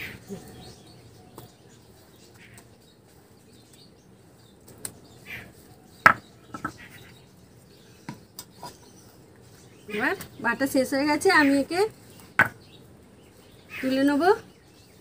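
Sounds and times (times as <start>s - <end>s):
birds chirping: 0.0s - 15.0s
stone knocking on stone slab: 6.0s - 6.8s, 12.4s - 12.6s.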